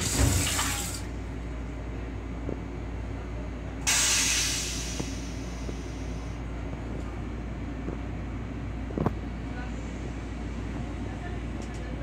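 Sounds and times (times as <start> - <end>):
toilet flushing hiss: 0.0 - 1.1
train rumble: 0.0 - 12.0.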